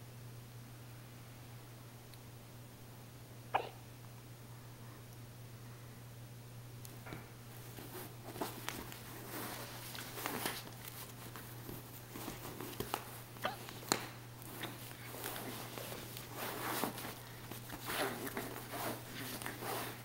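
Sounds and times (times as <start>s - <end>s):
puppy scuffling on fabric: 7.4s - 20.0s.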